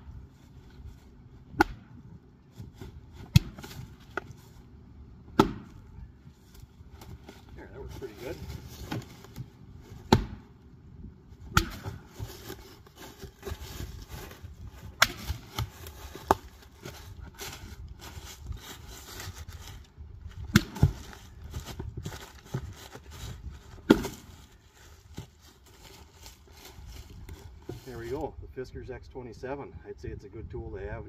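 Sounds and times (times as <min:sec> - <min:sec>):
axe chopping wood: 0:01.5 - 0:02.0, 0:03.2 - 0:04.3, 0:05.3 - 0:05.9, 0:10.0 - 0:10.5, 0:11.5 - 0:12.1, 0:14.9 - 0:16.4, 0:20.5 - 0:21.0, 0:23.8 - 0:24.2.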